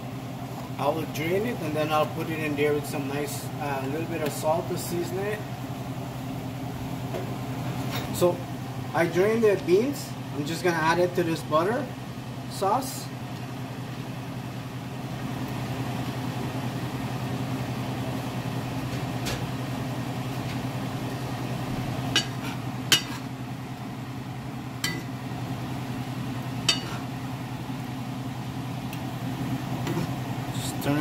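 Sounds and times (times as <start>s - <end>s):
steady low hum: 0.0s - 31.0s
utensil clinking against pan: 26.7s - 27.0s.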